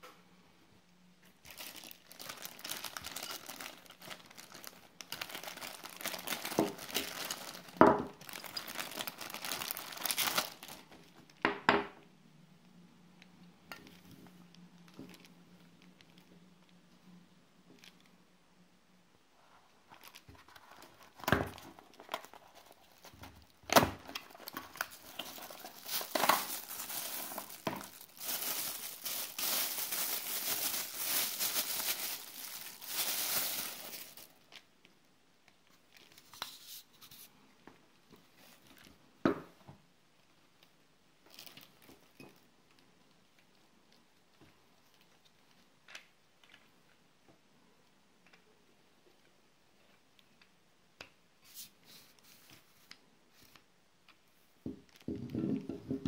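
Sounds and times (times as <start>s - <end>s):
plastic bag crinkling: 1.4s - 11.1s, 19.9s - 34.7s, 41.3s - 42.8s.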